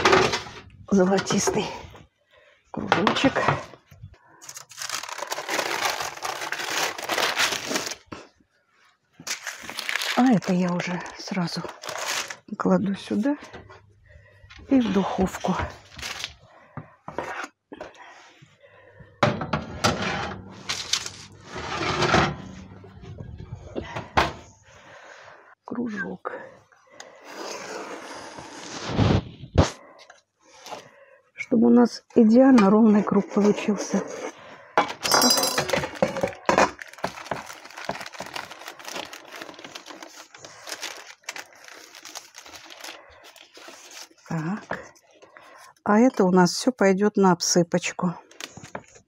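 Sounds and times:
paper rustling: 4.4s - 8.2s, 9.2s - 12.5s, 20.5s - 22.6s, 35.8s - 44.5s
metal tray scraping on rails: 19.6s - 20.7s, 21.3s - 22.9s.

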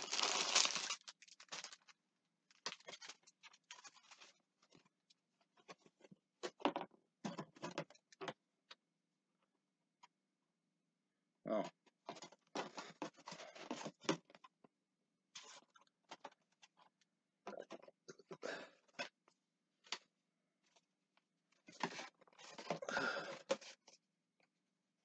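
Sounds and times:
packaging crinkling and rustling: 0.0s - 4.4s.

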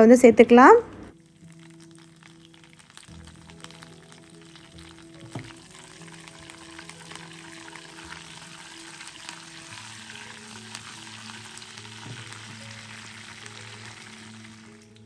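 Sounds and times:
spices sizzling in hot oil: 1.1s - 15.0s.

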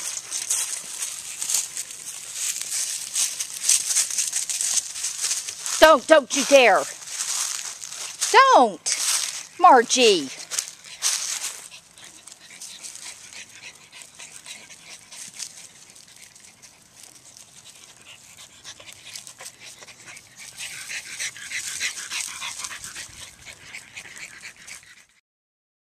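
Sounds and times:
dry leaves crackling underfoot: 0.0s - 8.3s, 8.9s - 9.6s, 10.3s - 13.3s
dogs panting: 8.8s - 25.2s.

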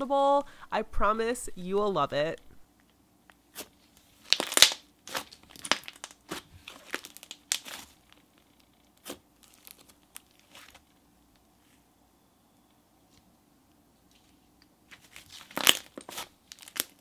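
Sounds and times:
slime squishing with crackling pops: 3.3s - 11.5s, 14.6s - 17.0s.

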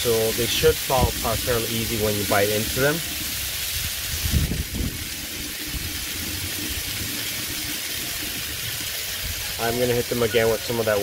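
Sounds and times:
burger patties sizzling on griddle: 0.0s - 11.0s
low rumble: 0.8s - 9.4s.

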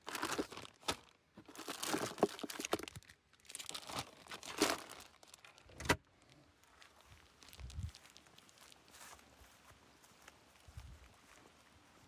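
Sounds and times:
plastic bags crinkling: 0.0s - 8.9s.

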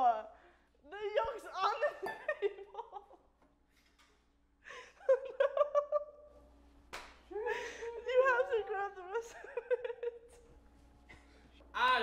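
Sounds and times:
people laughing and giggling: 1.6s - 3.3s, 4.7s - 6.3s, 7.3s - 10.5s.

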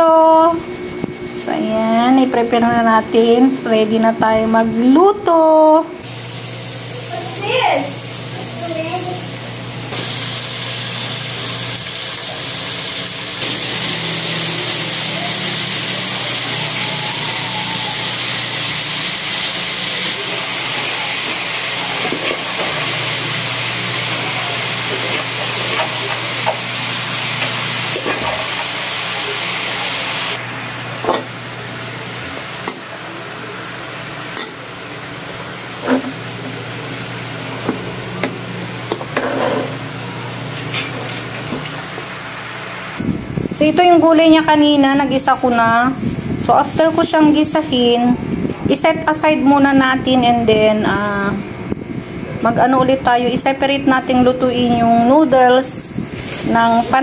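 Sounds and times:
food sizzling in a wok: 6.0s - 43.0s, 56.1s - 57.0s.

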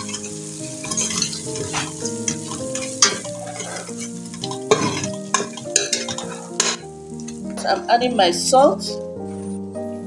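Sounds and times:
spoon scraping in a pot: 0.0s - 6.8s
food sizzling: 0.0s - 9.2s
slow background music: 0.0s - 10.0s.

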